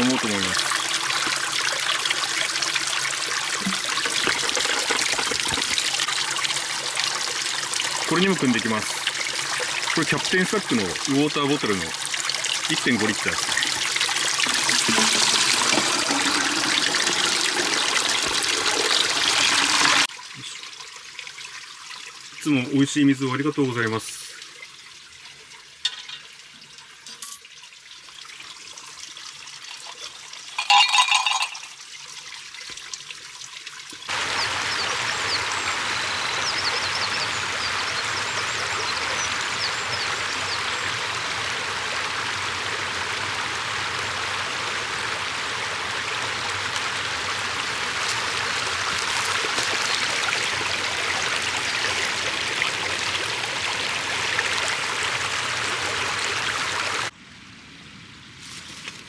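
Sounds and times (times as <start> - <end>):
stream running over rocks: 0.0 - 57.2.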